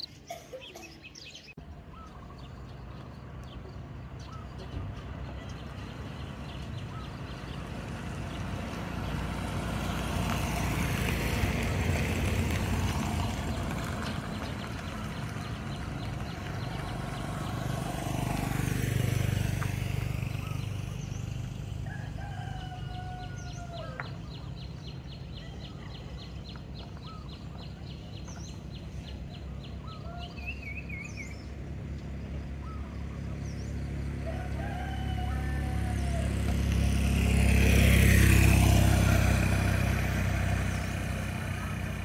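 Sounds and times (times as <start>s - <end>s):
car driving past: 2.4s - 27.4s, 28.3s - 42.0s
rooster crowing: 21.8s - 24.0s, 34.2s - 36.6s.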